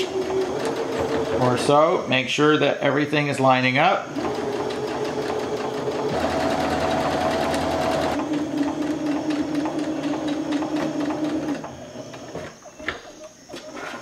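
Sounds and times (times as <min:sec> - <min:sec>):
sewing machine stitching: 0:00.0 - 0:02.0, 0:04.1 - 0:12.4.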